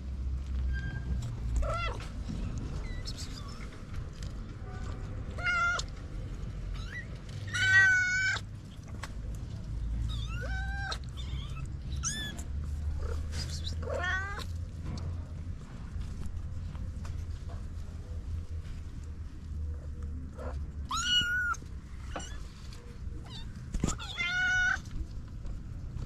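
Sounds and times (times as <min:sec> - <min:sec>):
kitten meowing: 0:05.4 - 0:05.9, 0:10.0 - 0:14.5, 0:20.9 - 0:22.4.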